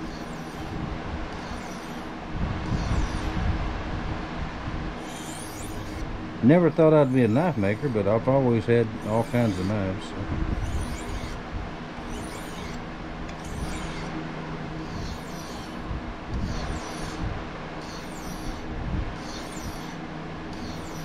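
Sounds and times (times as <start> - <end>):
knife scraping on sharpening stone: 0.0 - 3.4, 5.0 - 6.0, 6.7 - 8.2, 8.8 - 9.8, 10.6 - 11.4, 12.0 - 14.2, 14.8 - 15.8, 16.4 - 17.2, 17.8 - 18.6, 19.2 - 21.0
steady low hum: 0.0 - 21.0.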